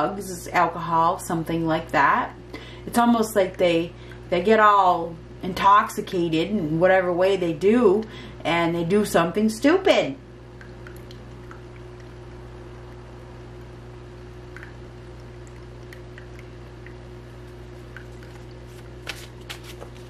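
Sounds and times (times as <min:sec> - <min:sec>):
low hum: 0:10.2 - 0:19.0
water fountain trickling: 0:10.5 - 0:13.2, 0:14.4 - 0:18.7.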